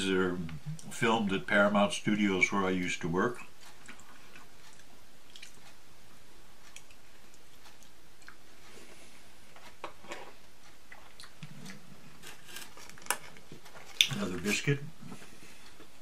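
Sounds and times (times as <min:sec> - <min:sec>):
room noise: 0:00.0 - 0:16.0
man chewing food: 0:03.4 - 0:16.0.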